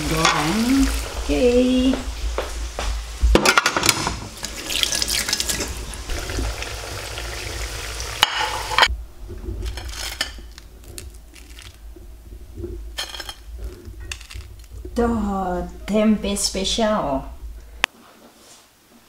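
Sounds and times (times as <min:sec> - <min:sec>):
food sizzling in frying oil: 0:00.0 - 0:08.9.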